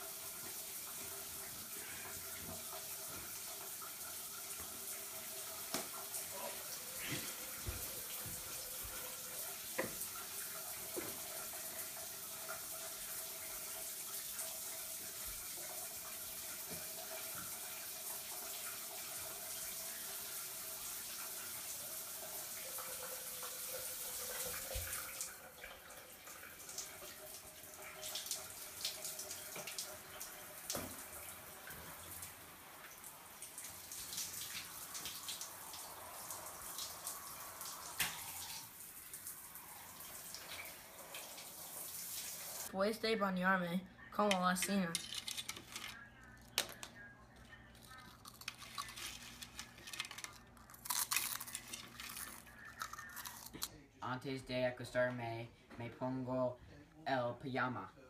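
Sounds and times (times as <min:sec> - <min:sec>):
water drips and splashes: 0:00.0 - 0:42.7
shower water running: 0:00.0 - 0:42.8, 0:44.2 - 0:53.8.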